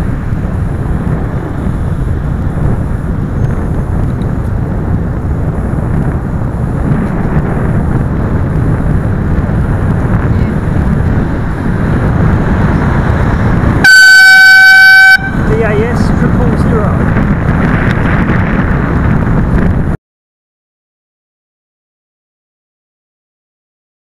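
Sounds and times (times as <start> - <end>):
road rumble: 0.0 - 20.0
wind: 0.0 - 20.0
air horn blast: 13.8 - 15.5.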